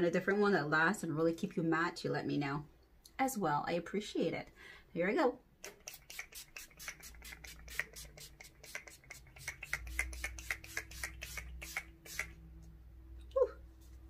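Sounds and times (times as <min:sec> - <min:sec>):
spray bottle spritzes: 0:05.6 - 0:12.4.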